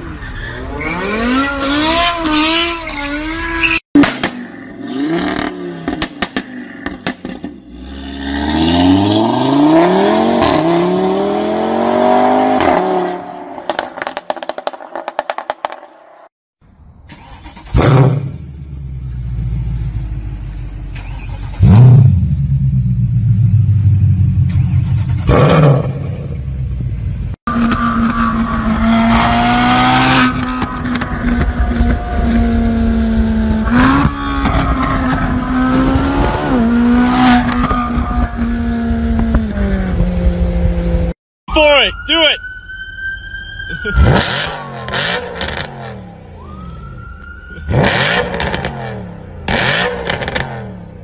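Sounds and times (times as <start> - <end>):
car engine revving: 20.9 - 41.2, 43.8 - 46.6, 47.6 - 51.0
engine blipped in sharp revs: 21.2 - 26.9, 47.7 - 51.0
car accelerating hard: 27.5 - 40.3.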